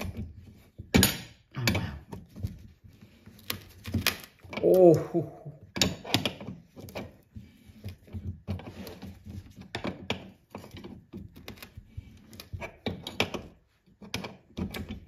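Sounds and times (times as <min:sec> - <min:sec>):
screwdriver scraping rust: 0:05.6 - 0:15.0.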